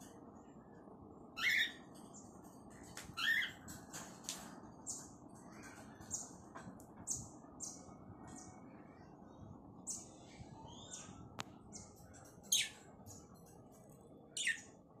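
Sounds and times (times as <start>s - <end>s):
cockatiels chirping: 1.4s - 1.8s.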